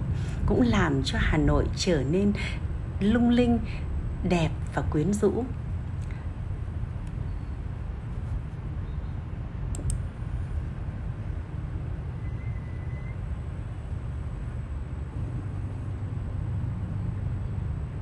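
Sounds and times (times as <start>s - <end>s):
vehicle rumble on road: 1.9s - 18.0s
sharp clicks: 9.7s - 10.1s.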